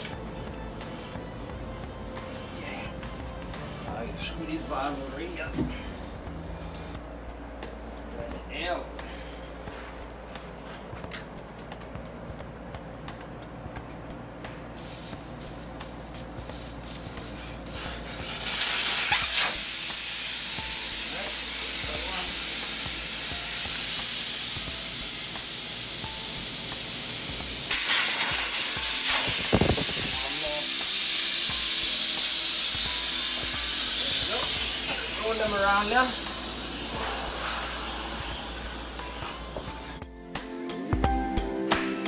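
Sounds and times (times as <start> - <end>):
compressed air hissing: 5.3 - 7.0, 14.8 - 40.0.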